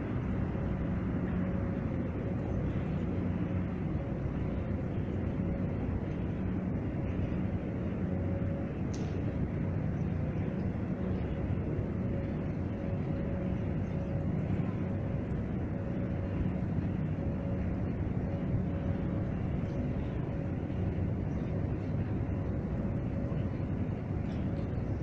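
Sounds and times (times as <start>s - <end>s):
faint drive machinery hum: 0.0s - 25.0s
steady mechanical rumble: 0.0s - 25.0s.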